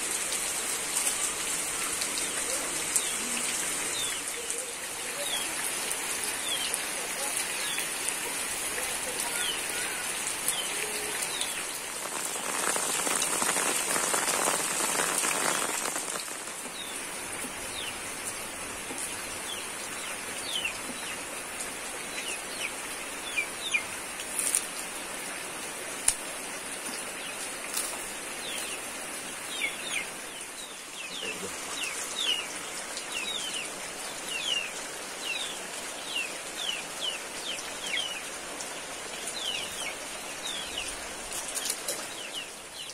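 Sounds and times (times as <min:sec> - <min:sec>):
rain-like hiss: 0:00.0 - 0:42.9
birds chirping: 0:02.2 - 0:17.1.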